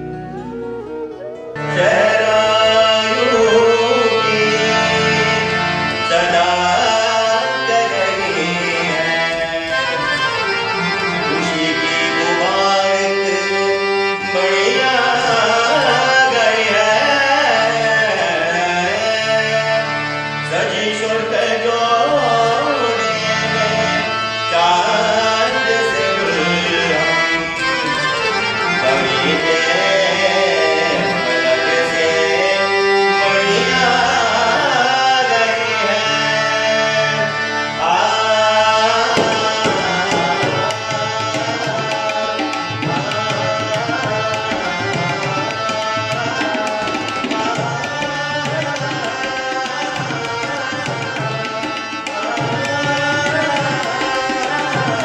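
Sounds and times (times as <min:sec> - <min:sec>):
harmonium: 0:00.0 - 0:55.0
tabla: 0:00.0 - 0:55.0
man singing: 0:01.6 - 0:55.0.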